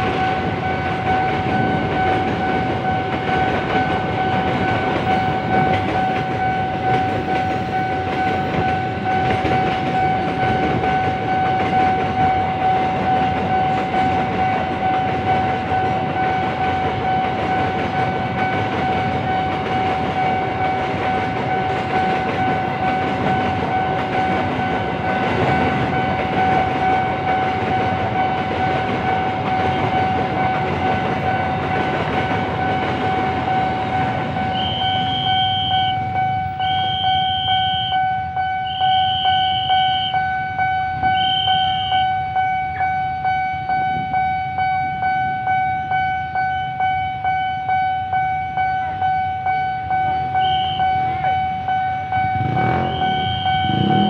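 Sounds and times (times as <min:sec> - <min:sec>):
crossing alarm bell ringing: 0:00.0 - 0:54.0
freight train rolling: 0:00.0 - 0:54.0
short high-pitched toots: 0:34.5 - 0:38.0, 0:52.4 - 0:54.0.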